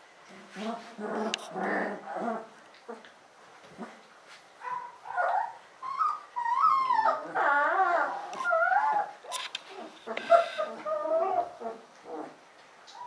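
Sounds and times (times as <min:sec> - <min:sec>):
puppies whimpering and whining: 0:04.6 - 0:13.0.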